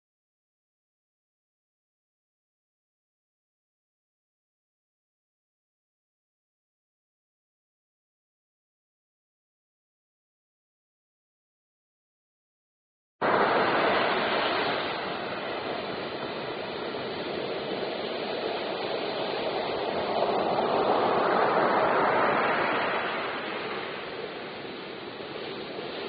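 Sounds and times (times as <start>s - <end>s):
waves breaking on a beach: 13.2s - 26.0s.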